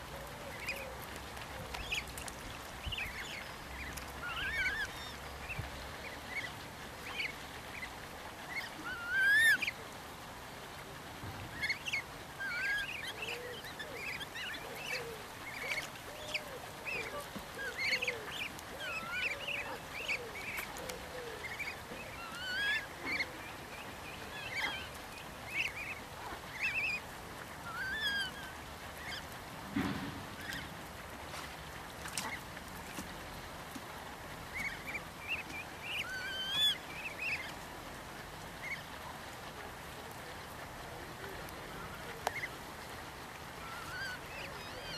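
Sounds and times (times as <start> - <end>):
adult swans calling softly: 0.0 - 29.4, 34.2 - 44.9
cygnets peeping: 0.2 - 9.8, 11.4 - 29.3, 34.5 - 37.6, 43.6 - 44.9.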